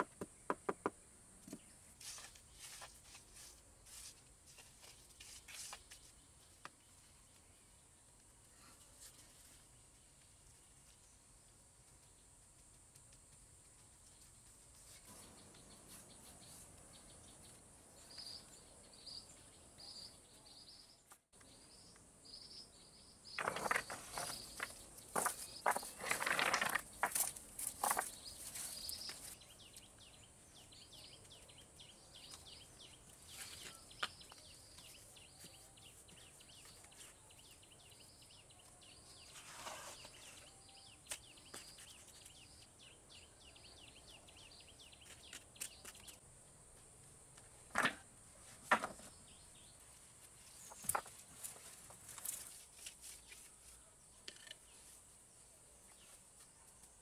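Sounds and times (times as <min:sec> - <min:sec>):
rocks clattering into a basket: 0:23.4 - 0:28.2.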